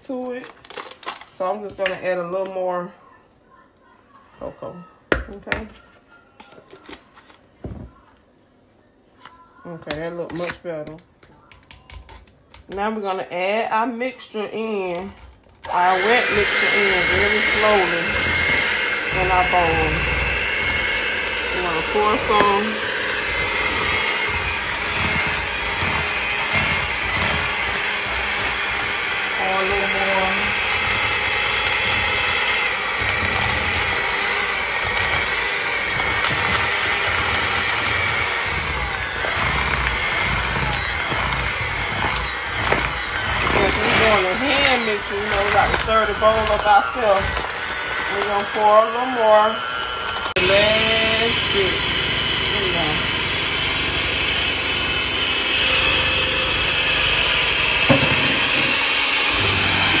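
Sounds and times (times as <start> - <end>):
electric hand mixer whine: 15.6 - 60.0.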